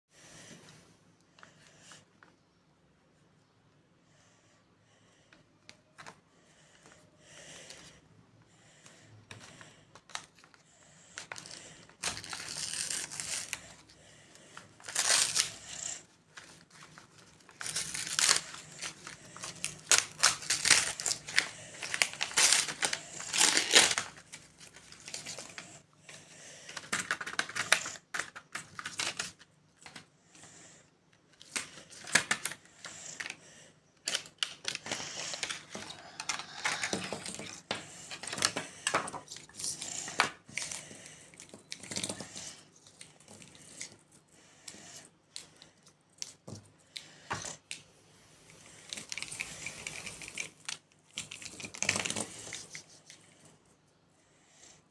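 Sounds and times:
paper and plastic crinkling: 11.2 - 14.0, 14.6 - 25.8, 26.7 - 30.1, 48.8 - 53.3.

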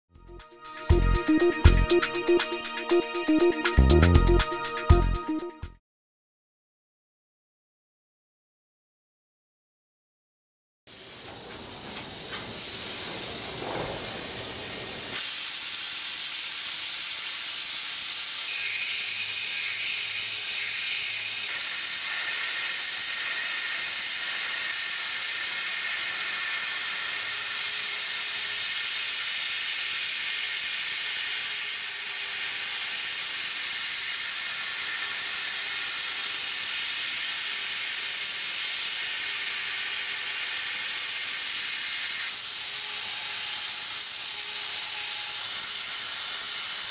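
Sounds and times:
coolant spray hissing: 10.9 - 31.2
machine cutting metal: 16.7 - 46.9.

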